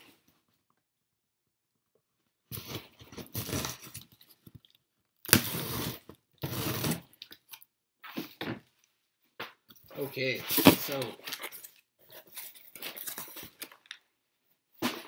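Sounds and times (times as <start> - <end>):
tape and cardboard tearing: 2.5 - 4.2, 5.2 - 7.5
knife slitting packing tape: 5.3 - 7.1.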